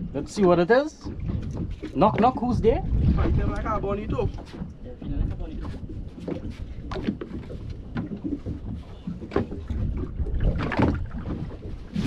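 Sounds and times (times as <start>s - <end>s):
water slapping against boat hull: 0.0s - 12.0s
low rumble: 2.4s - 6.1s.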